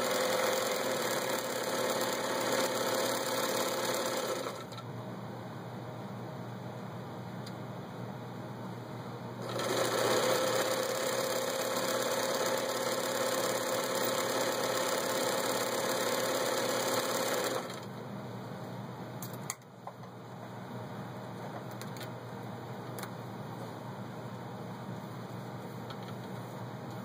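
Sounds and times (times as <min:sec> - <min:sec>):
sewing machine stitching: 0:00.0 - 0:04.7, 0:09.4 - 0:17.9.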